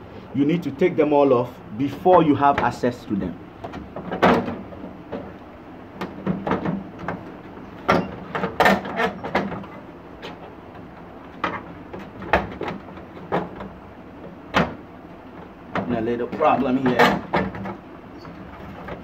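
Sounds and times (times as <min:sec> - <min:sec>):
plastic knocks and clicks: 0:06.0 - 0:13.8.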